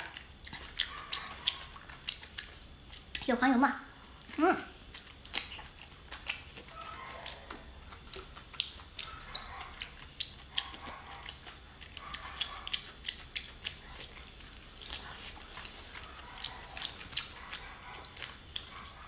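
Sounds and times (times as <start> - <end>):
wet eating smacks and sucking: 4.9 - 18.8.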